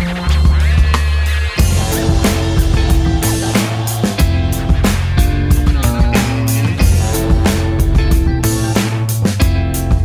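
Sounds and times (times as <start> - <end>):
background music with drums: 0.0 - 10.0.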